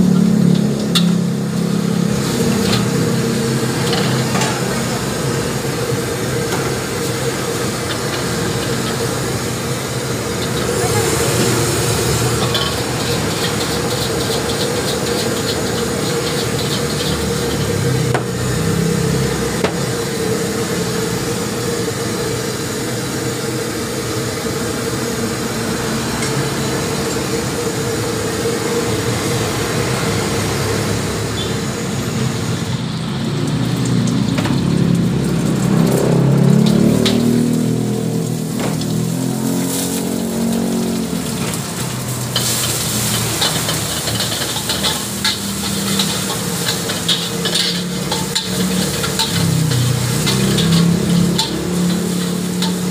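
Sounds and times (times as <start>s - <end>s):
egg sizzling in hot oil: 0.0s - 52.9s
gas burner rushing and humming: 0.0s - 52.9s
brush scrubbing a steel wok: 10.5s - 17.7s, 38.4s - 52.9s.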